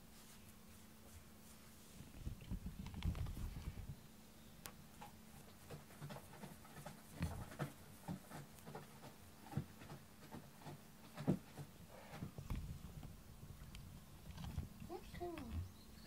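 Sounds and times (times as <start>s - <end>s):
fingers rubbing cat fur: 0.1s - 3.8s, 5.3s - 11.7s.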